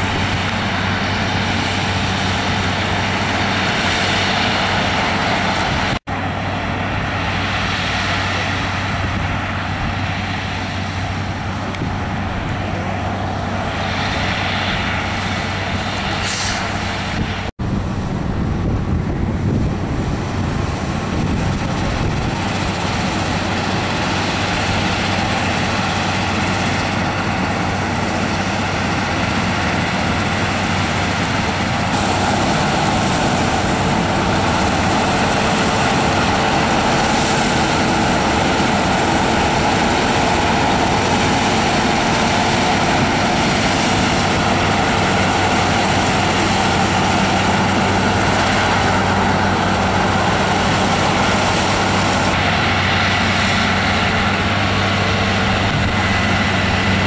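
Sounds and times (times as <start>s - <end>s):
combine harvester engine drone: 0.0s - 57.0s
threshing machinery rushing: 0.0s - 57.0s.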